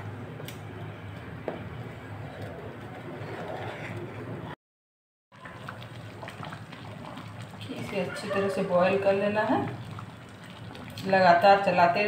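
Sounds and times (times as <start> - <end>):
sauce bubbling in a pan: 5.3 - 12.0.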